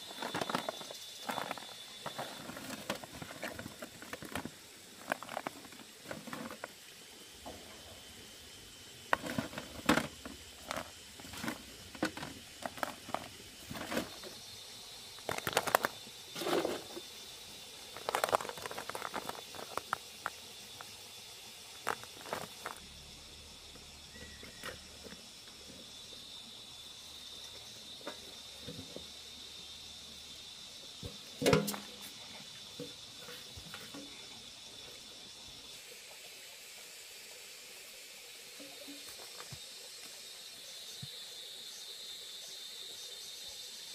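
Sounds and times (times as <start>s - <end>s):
mussel shells clacking: 17.9s - 20.9s.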